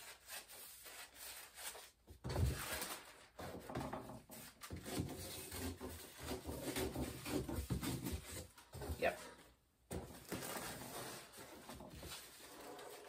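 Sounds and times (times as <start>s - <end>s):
paper rustling on table: 0.2s - 3.6s.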